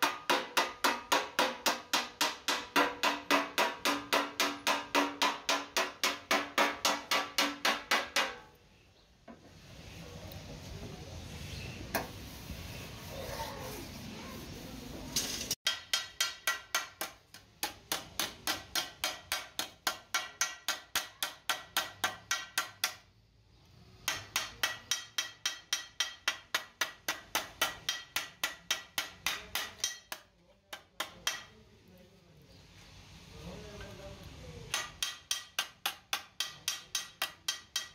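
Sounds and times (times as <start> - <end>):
hammer striking sheet metal: 0.0 - 8.6, 15.2 - 23.0, 24.0 - 31.6, 34.7 - 37.9.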